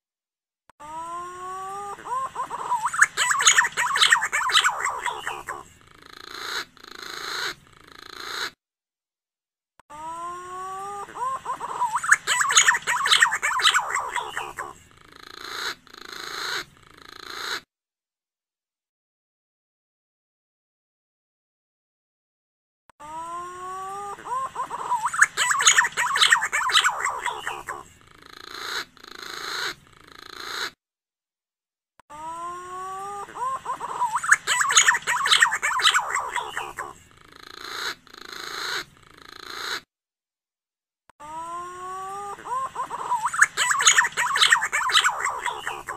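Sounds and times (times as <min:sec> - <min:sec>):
rasping bird phrases: 0:01.4 - 0:08.6, 0:10.6 - 0:17.6, 0:23.5 - 0:30.8, 0:32.6 - 0:39.8, 0:41.6 - 0:45.9.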